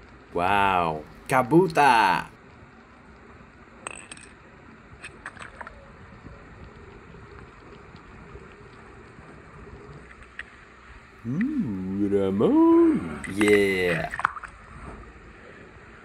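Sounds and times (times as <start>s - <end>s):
faint pool water wash: 0.0s - 16.0s
water ticks: 5.4s - 10.6s.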